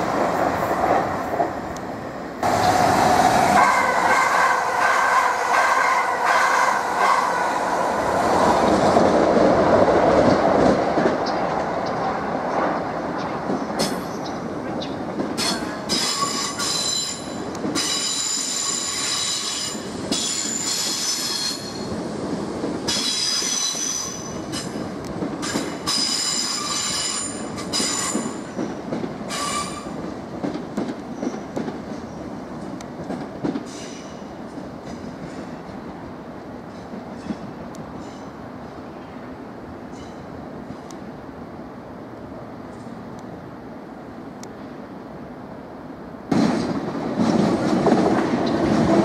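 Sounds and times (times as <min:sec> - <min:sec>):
train wheels squealing on rails: 0:13.2 - 0:22.0, 0:22.9 - 0:30.0, 0:33.6 - 0:34.3, 0:36.7 - 0:38.4, 0:39.9 - 0:40.9
train running rumble: 0:46.3 - 0:49.0.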